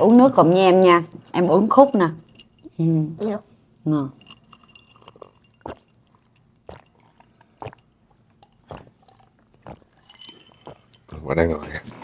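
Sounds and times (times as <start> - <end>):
person chewing crunchy food: 4.4 - 11.2.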